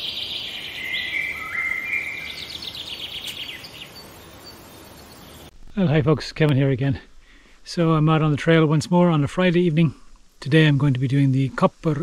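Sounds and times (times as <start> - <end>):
bird fast trill: 0.0 - 5.5
bird whistling song: 0.0 - 5.5.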